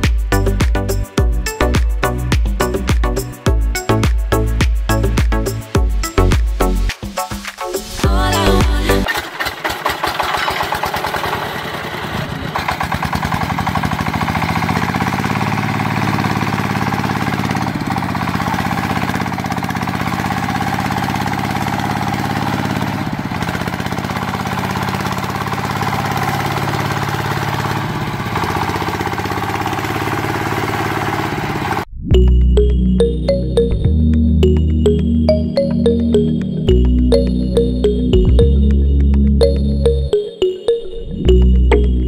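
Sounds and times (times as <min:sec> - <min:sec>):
small engine running: 0:08.4 - 0:31.9.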